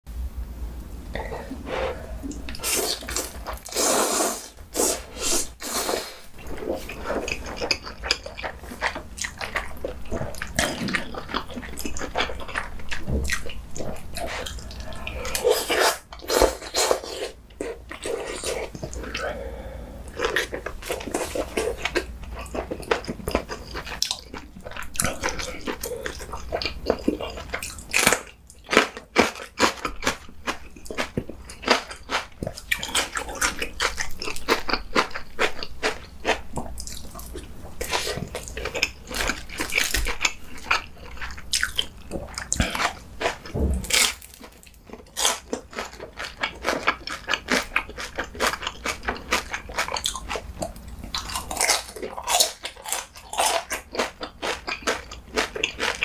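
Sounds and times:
person slurping noodles: 1.1 - 7.6, 14.2 - 21.8
wet chewing with mouth clicks: 6.4 - 56.0.

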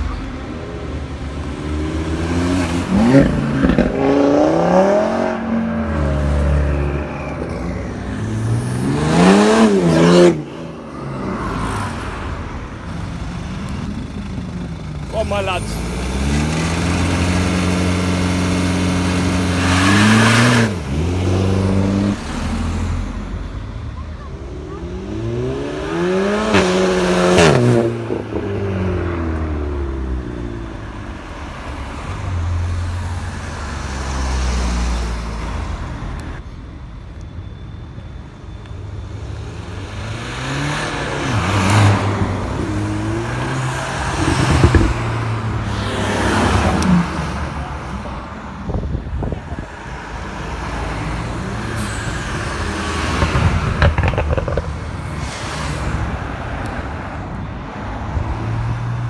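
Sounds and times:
cars revving past: 0.0 - 12.6, 15.4 - 23.4, 24.7 - 36.2, 39.6 - 59.0.

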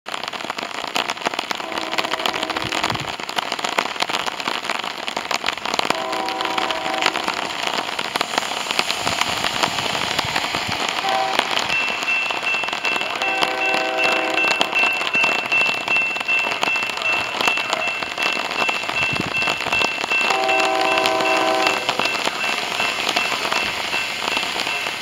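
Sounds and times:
heavy rain: 0.0 - 25.0
distant train horn: 1.6 - 2.8, 5.9 - 7.4, 11.0 - 12.0, 12.8 - 15.4, 20.1 - 23.6
crossing warning bell ringing: 10.4 - 25.0.

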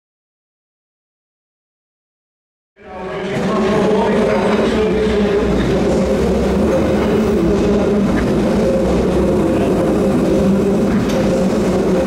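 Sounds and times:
electric train humming: 2.8 - 12.0.

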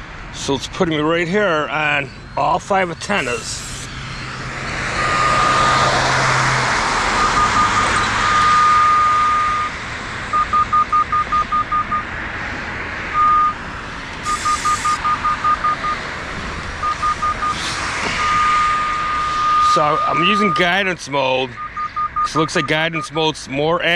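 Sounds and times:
high locator beeps: 1.8 - 12.1, 13.1 - 13.6, 14.2 - 16.1, 16.8 - 23.2
steady background rush: 10.4 - 23.3.

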